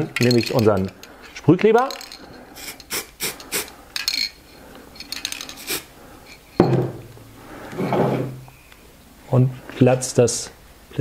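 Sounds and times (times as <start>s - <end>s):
aerosol can hissing: 2.6s - 3.7s, 5.6s - 5.9s.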